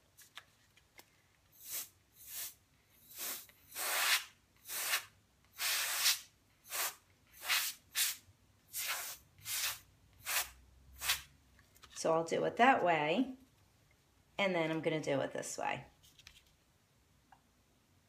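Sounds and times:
compressed air duster hissing blasts: 0:01.6 - 0:11.3.

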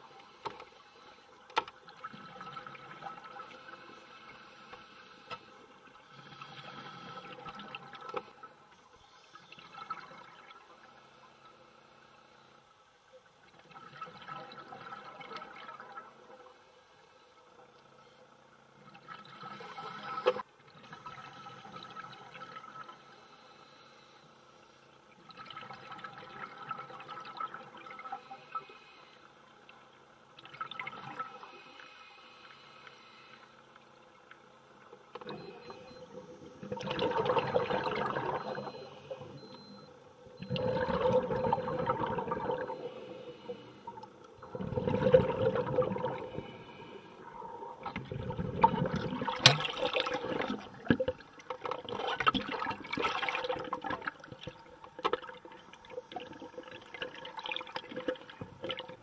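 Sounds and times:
underwater bubbles gurgling: 0:01.8 - 0:04.5, 0:05.7 - 0:11.4, 0:13.4 - 0:16.6, 0:25.1 - 0:28.7, 0:34.0 - 0:59.0.

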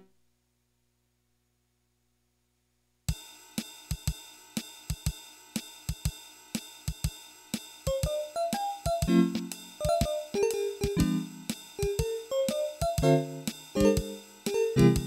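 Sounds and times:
hi-hat and cymbal ticks: 0:03.1 - 0:15.0
keyboard notes: 0:07.9 - 0:15.0.

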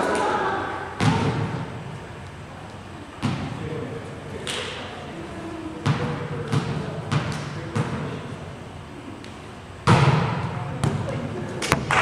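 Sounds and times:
volleyball bouncing on gym floor: 0:01.0 - 0:01.7, 0:03.2 - 0:03.6, 0:05.8 - 0:08.2, 0:09.8 - 0:12.0.

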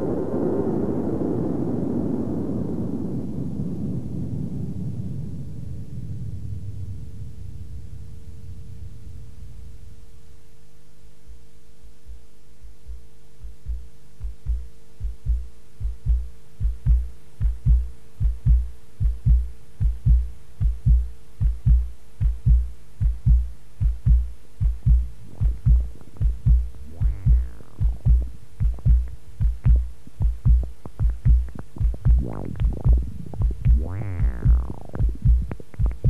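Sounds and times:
low synthesizer pulse: 0:12.8 - 0:36.0
low synthesizer drone: 0:24.8 - 0:36.0.

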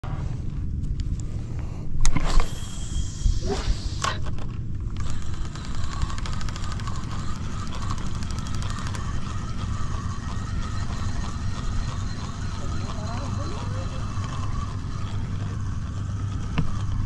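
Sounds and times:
low rumble: 0:00.0 - 0:05.1
fishing reel ticking: 0:04.9 - 0:17.0.

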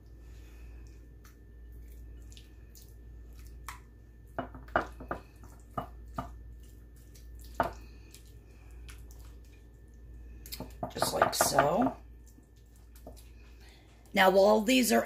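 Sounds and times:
brush squishing marinade: 0:05.0 - 0:14.0
brush tapping dish: 0:10.6 - 0:12.0.

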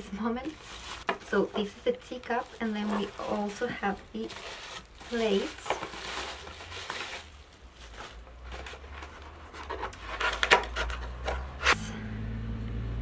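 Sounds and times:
rustling and scuffing: 0:00.4 - 0:10.3.

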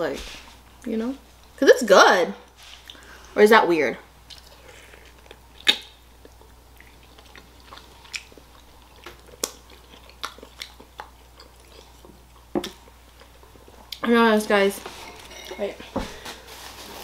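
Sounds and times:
wet mouth smacks and clicks: 0:05.6 - 0:07.5.

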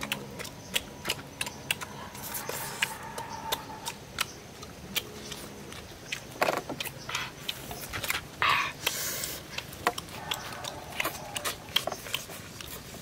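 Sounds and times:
lip smacks and chewing: 0:00.0 - 0:13.0.

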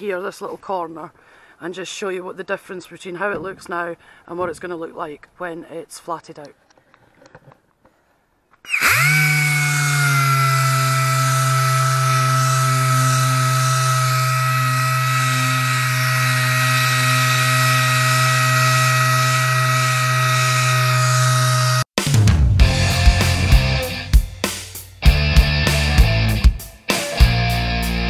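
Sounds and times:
orbital sander whining: 0:08.7 - 0:21.9.

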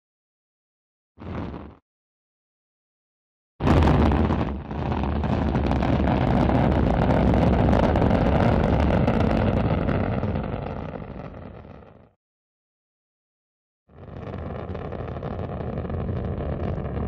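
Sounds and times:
deep rocket engine rumble: 0:03.6 - 0:12.2, 0:13.9 - 0:17.0.

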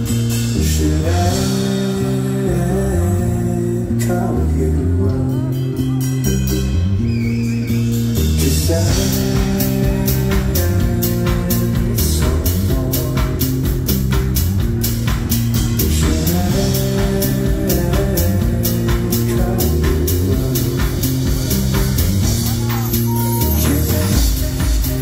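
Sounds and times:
live band music through pa: 0:00.0 - 0:25.0.

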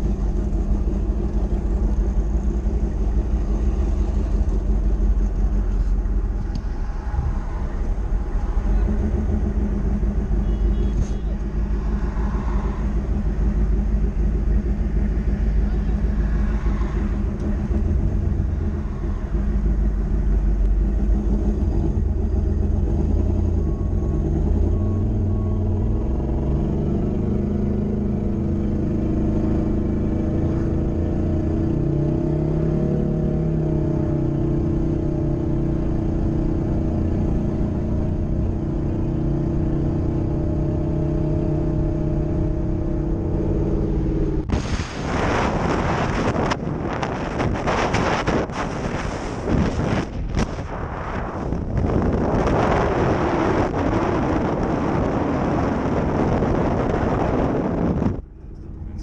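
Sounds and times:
car engine from inside cabin: 0:00.0 - 0:59.0
wind rushing over microphone: 0:33.8 - 0:58.3.

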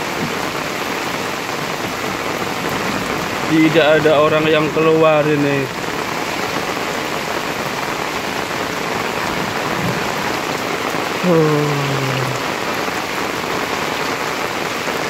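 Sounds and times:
heavy rain pouring: 0:00.0 - 0:15.0
short low falling call: 0:11.2 - 0:12.5.

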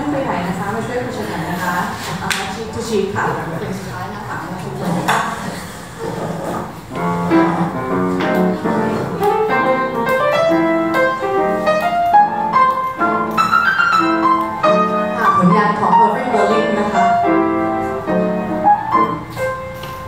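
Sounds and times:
jazz piano solo: 0:06.2 - 0:20.0.

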